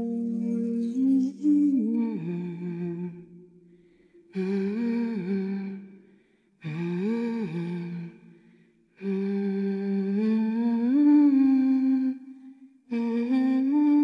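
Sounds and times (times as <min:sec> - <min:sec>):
person humming slow melody: 0:00.0 - 0:03.3, 0:04.3 - 0:05.9, 0:12.9 - 0:14.0.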